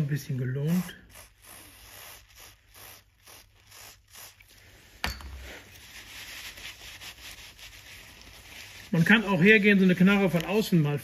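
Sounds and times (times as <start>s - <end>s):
rag rubbing over ratchet: 0.0s - 10.6s
aerosol spray hisses: 0.3s - 6.2s.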